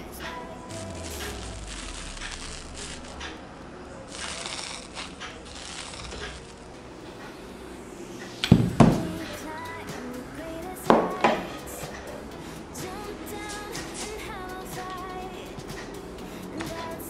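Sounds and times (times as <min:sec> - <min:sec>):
slime crackling and popping: 0:00.7 - 0:03.4, 0:04.1 - 0:06.7.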